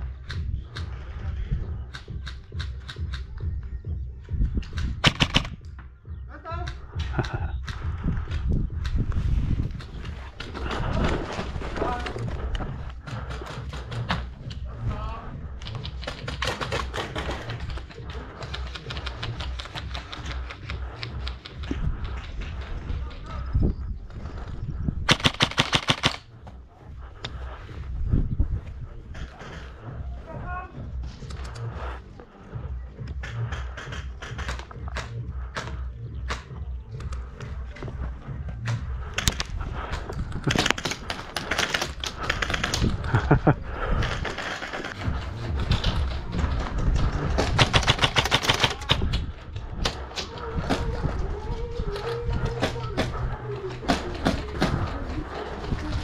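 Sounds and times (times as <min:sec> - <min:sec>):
airsoft guns firing in bursts: 0:04.8 - 0:05.7, 0:15.6 - 0:21.5, 0:25.1 - 0:26.4, 0:33.1 - 0:36.7, 0:40.4 - 0:46.3, 0:47.1 - 0:49.2
airsoft guns firing: 0:05.0 - 0:05.6, 0:25.1 - 0:26.3, 0:47.4 - 0:49.2.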